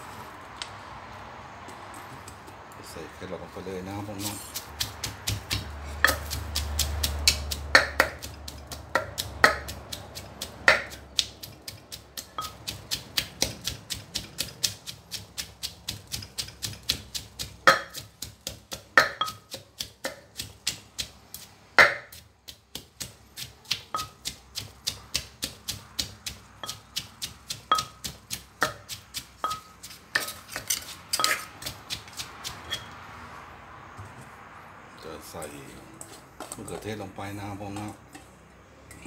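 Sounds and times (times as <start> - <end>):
wooden pestle pounding in mortar: 3.9 - 32.9.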